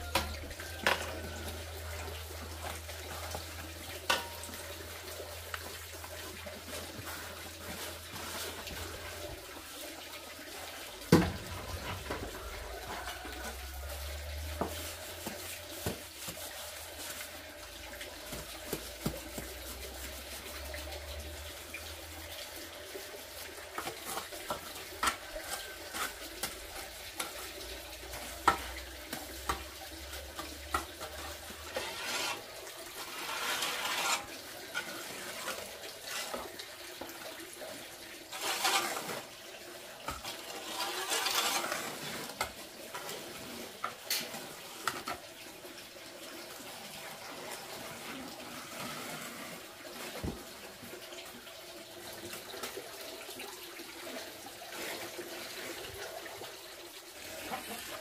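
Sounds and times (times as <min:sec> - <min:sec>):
trowel scraping wet mortar: 0:28.1 - 0:36.5, 0:38.3 - 0:39.4, 0:40.1 - 0:44.2.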